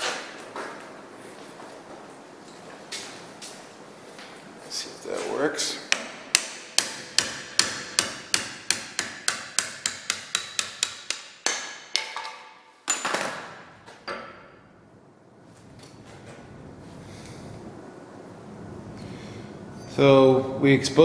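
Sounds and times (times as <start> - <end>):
hammer striking metal punch: 5.9 - 14.5.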